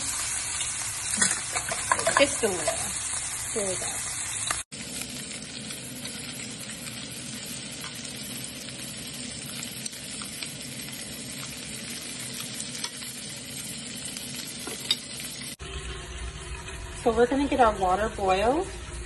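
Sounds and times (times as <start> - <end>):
shrimp sizzling in oil: 0.0 - 19.0.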